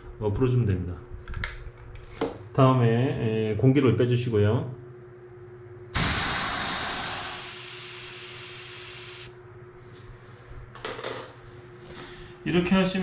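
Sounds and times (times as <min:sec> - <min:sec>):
air hissing from tyre valve: 0:06.0 - 0:09.3.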